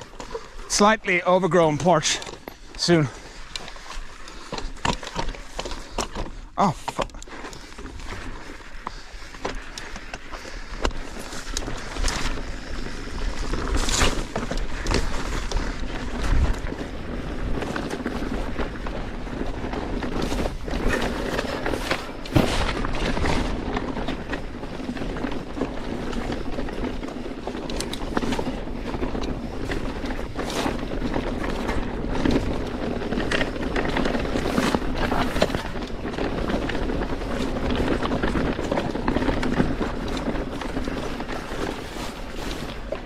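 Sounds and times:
tyres rolling over loose stones: 0:00.0 - 0:43.0
bike knocks and rattles: 0:01.4 - 0:43.0
wind noise on microphone: 0:10.5 - 0:43.0.

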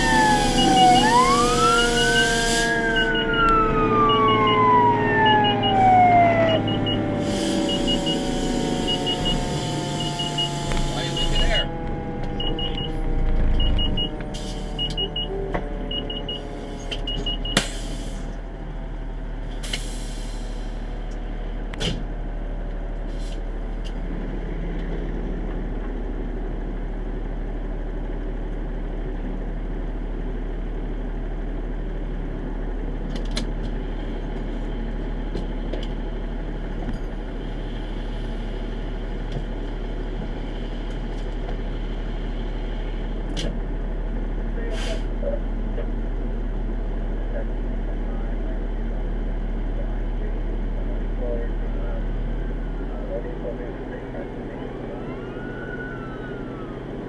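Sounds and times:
siren winding down: 0:00.0 - 0:17.5, 0:54.4 - 0:57.0
diesel engine running: 0:00.0 - 0:57.0
air brake hiss: 0:01.8 - 0:02.8, 0:07.2 - 0:10.6, 0:17.6 - 0:18.4, 0:19.6 - 0:20.8, 0:44.7 - 0:45.1
short paired beeps: 0:10.0 - 0:11.6, 0:12.4 - 0:14.2.

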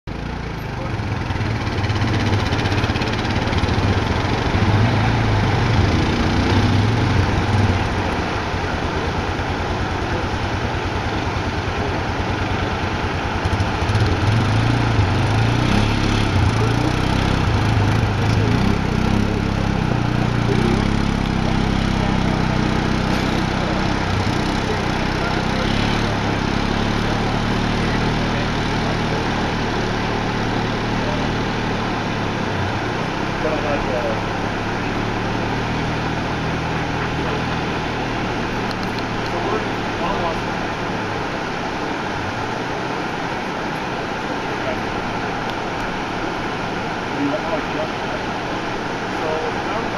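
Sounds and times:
atv engine running: 0:00.0 - 0:49.9
motorcycle engine pulling away: 0:00.5 - 0:42.1.

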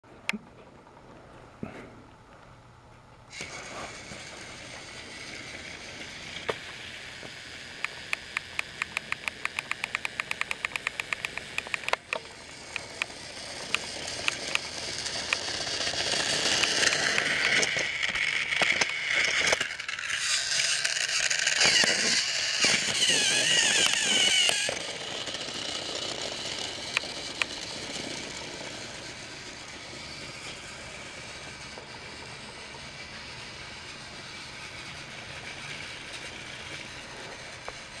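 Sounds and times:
small electric motors whirring: 0:03.3 - 0:38.0
toy train wheels clicking on track: 0:03.3 - 0:38.0.

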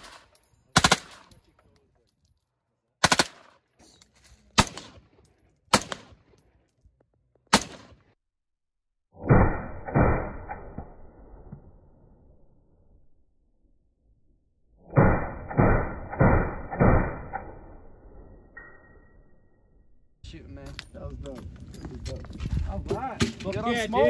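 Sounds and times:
rifle shots with echo: 0:00.0 - 0:01.4, 0:03.0 - 0:03.6, 0:04.5 - 0:06.3, 0:07.5 - 0:08.2.

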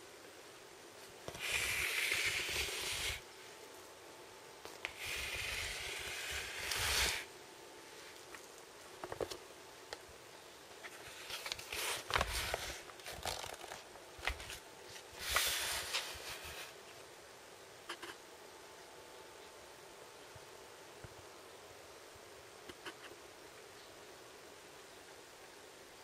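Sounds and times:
handling noise rustling and scraping: 0:04.6 - 0:09.5, 0:10.7 - 0:17.0.

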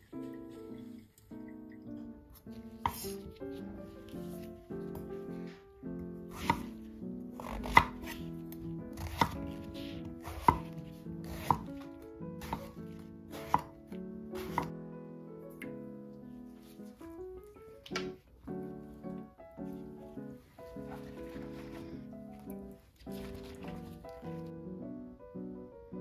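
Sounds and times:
soft piano music: 0:00.0 - 0:26.0
knife chopping on wooden board: 0:02.9 - 0:03.3, 0:06.3 - 0:06.7, 0:07.4 - 0:08.3, 0:08.9 - 0:11.8, 0:12.4 - 0:13.7, 0:14.4 - 0:14.7.

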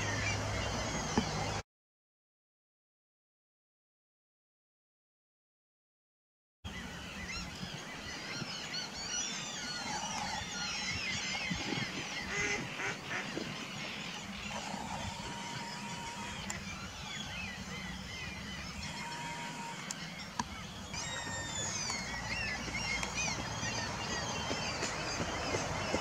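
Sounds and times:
birds chirping: 0:00.0 - 0:01.6, 0:06.7 - 0:26.0
birds honking: 0:06.7 - 0:26.0.

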